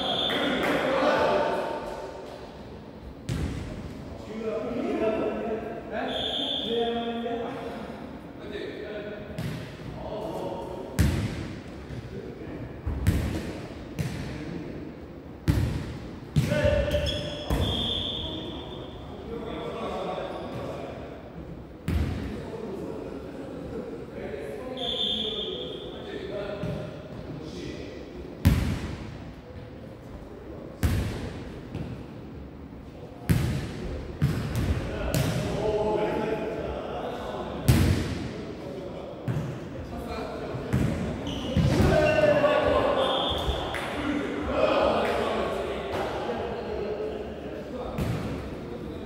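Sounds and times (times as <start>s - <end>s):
ball smacking in echoing hall: 0.0s - 2.6s, 3.2s - 4.0s, 9.2s - 12.2s, 12.8s - 14.6s, 15.4s - 19.0s, 21.8s - 22.6s, 28.4s - 29.7s, 30.7s - 32.1s, 33.2s - 35.9s, 37.5s - 46.4s, 47.8s - 49.0s.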